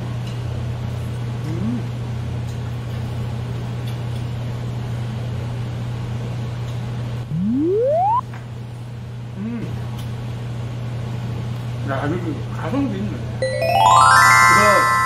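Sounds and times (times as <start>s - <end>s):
extraction fan humming: 7.0s - 8.2s
loud rising tone: 7.2s - 8.2s.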